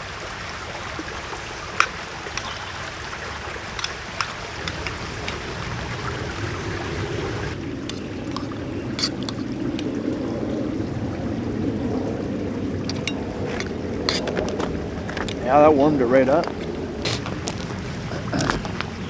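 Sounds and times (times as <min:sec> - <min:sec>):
camp cookware clinking: 0:01.8 - 0:02.6, 0:03.8 - 0:05.4, 0:07.8 - 0:09.4, 0:12.9 - 0:14.4
steady rushing noise: 0:03.6 - 0:19.0.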